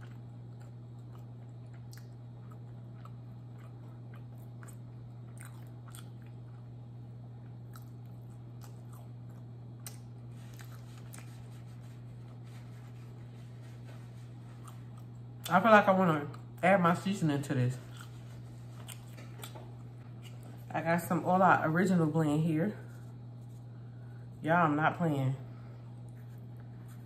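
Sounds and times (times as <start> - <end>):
person chewing: 0.0 - 12.9, 14.3 - 15.5, 17.8 - 20.7
steady low hum: 0.0 - 27.0.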